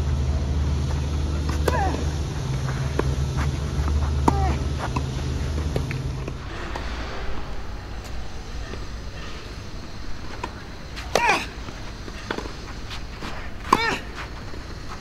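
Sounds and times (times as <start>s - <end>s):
low steady rumble: 0.0s - 15.0s
racket hitting ball: 10.2s - 15.0s
tennis ball bouncing: 10.4s - 15.0s.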